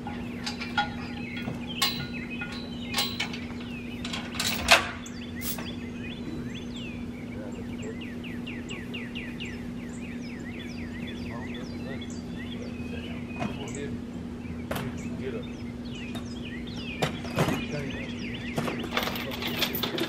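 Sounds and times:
metal clanks and clinks: 0:00.0 - 0:05.8, 0:18.6 - 0:20.0
steady low hum: 0:00.0 - 0:20.0
bird whistling song: 0:00.2 - 0:04.2, 0:05.0 - 0:19.4.

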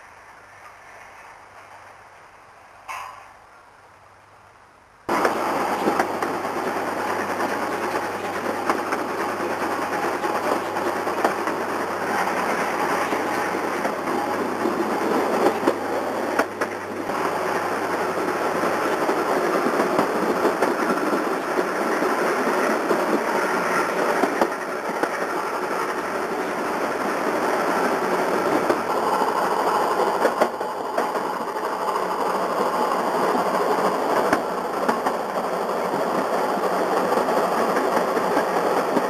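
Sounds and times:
train wheels on rails: 0:00.0 - 0:03.4, 0:05.1 - 0:39.0.

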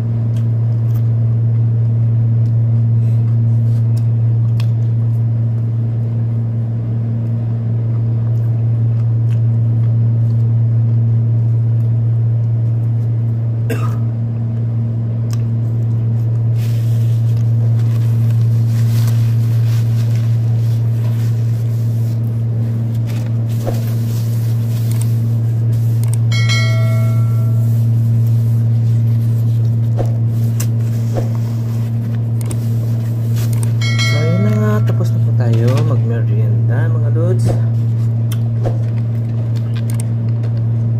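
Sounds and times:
air conditioner humming: 0:00.0 - 0:40.9
paper napkins rustling: 0:16.5 - 0:26.0, 0:27.6 - 0:33.8.

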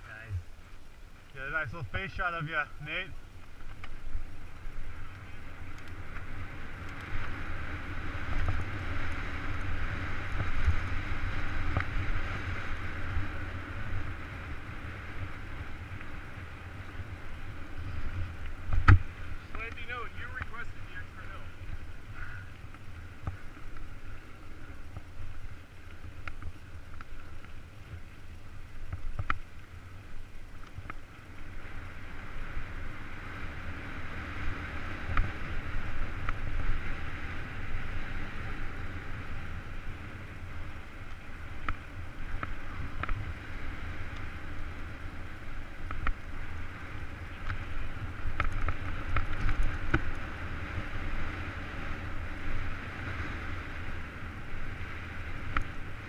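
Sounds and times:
tyres rolling on dirt: 0:00.0 - 0:52.9
bike clicks and rattles: 0:03.2 - 0:56.0.

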